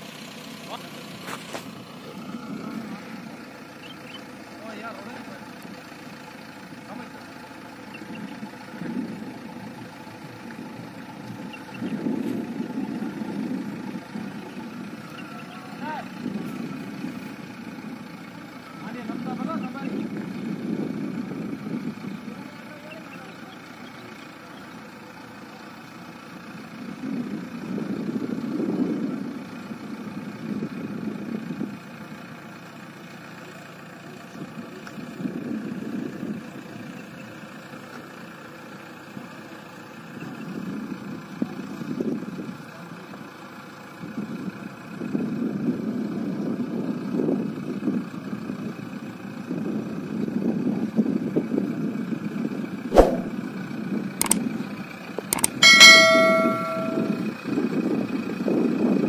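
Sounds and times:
sharp click: 53.0s - 53.3s, 55.2s - 57.2s.

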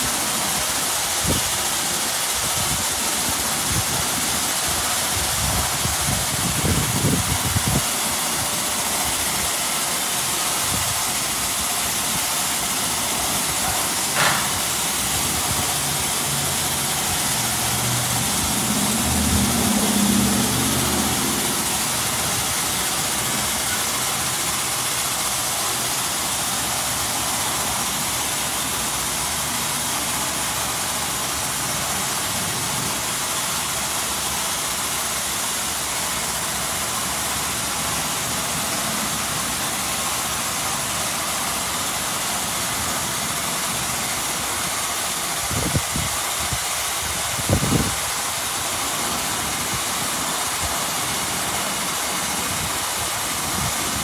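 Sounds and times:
water jets hissing: 0.0s - 54.0s
low machine hum: 10.3s - 25.8s
brief sharp noise: 13.6s - 14.7s.

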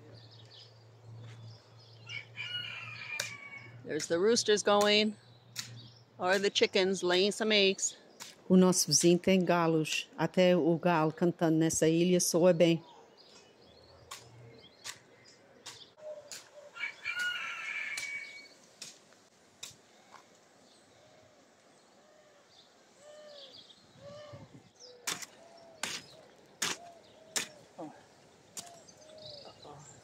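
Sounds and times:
rooster call: 16.7s - 18.5s
hoe chopping into soil: 25.0s - 27.6s.

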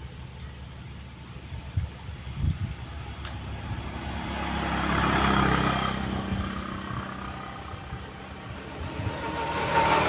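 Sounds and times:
motor engine running: 0.0s - 10.0s.

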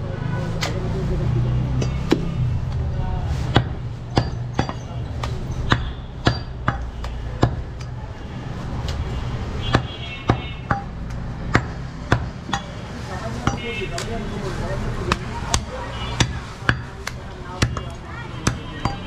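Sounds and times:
cleavers chopping on wooden blocks: 3.5s - 8.0s, 9.6s - 12.8s, 15.0s - 19.0s.

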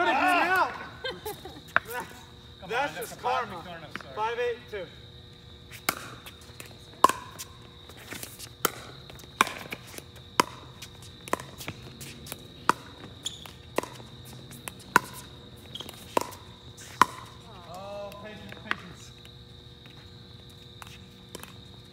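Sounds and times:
ball bouncing on hard court: 5.8s - 7.5s, 8.6s - 17.4s.

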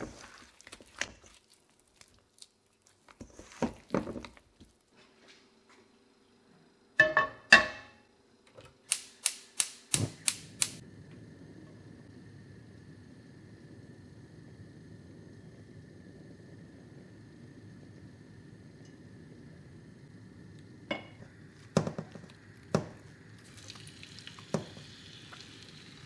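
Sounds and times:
gas igniter clicking: 8.8s - 10.8s
gas burner hissing: 8.8s - 26.0s.

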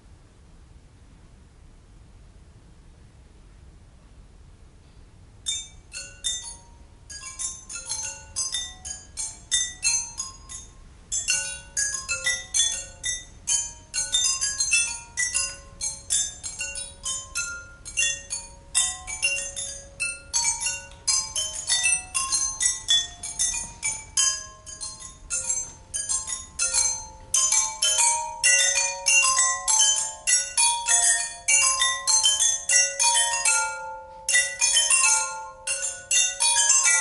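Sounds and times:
tuned pipes struck with sticks: 5.5s - 37.0s.

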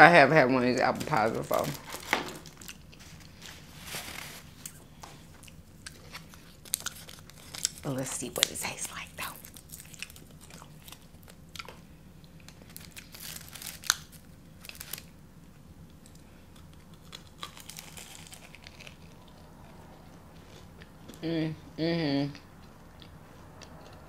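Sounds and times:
paper wrapper crinkling and tearing: 0.8s - 4.8s, 5.4s - 11.4s, 12.5s - 15.1s, 16.7s - 19.3s
crunchy pastry chewing: 1.3s - 15.2s, 15.8s - 21.2s.

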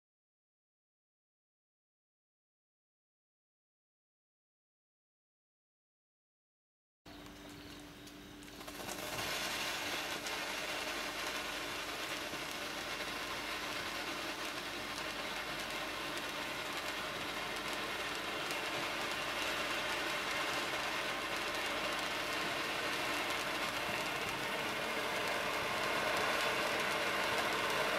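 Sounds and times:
firework fountain hissing and crackling: 7.5s - 27.9s.

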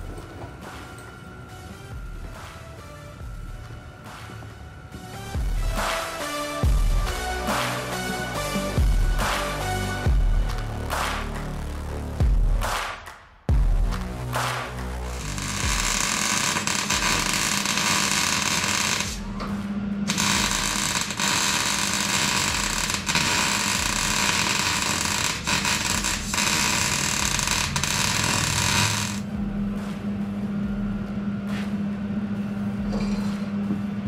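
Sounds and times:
angle grinder grinding steel: 20.1s - 29.2s
grinder motor humming: 20.1s - 29.2s.

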